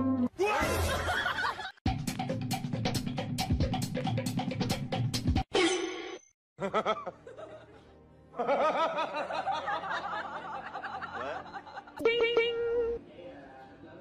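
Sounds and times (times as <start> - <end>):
light music: 6.7 - 13.9.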